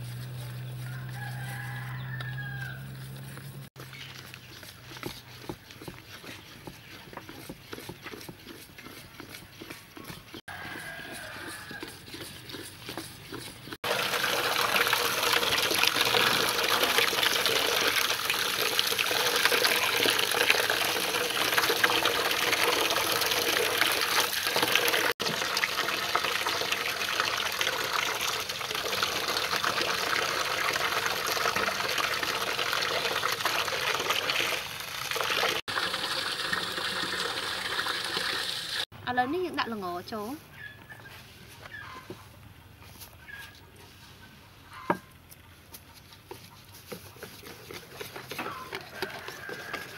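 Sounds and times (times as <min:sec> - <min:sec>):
water splashing in metal basin: 0:13.8 - 0:38.9.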